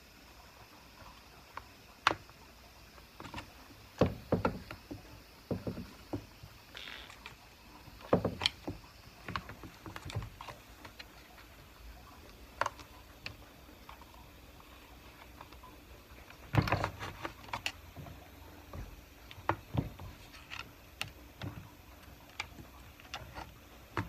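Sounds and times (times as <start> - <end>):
clicks and taps of parts: 8.0 - 11.2.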